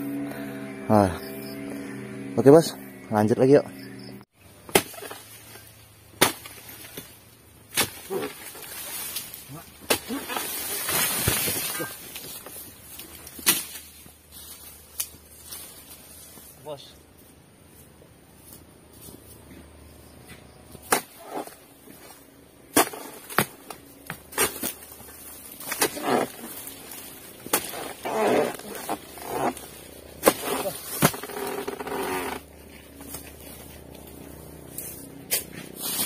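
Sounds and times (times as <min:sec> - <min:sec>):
palm fronds rustling: 0:04.4 - 0:19.6, 0:20.7 - 0:36.0
chisel chopping into palm: 0:04.7 - 0:05.2, 0:06.2 - 0:07.1, 0:27.4 - 0:29.4.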